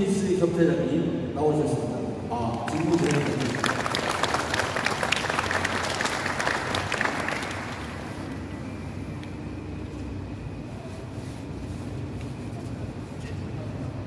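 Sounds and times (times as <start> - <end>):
steady low hum: 0.0 - 14.0
people applauding: 2.3 - 8.5.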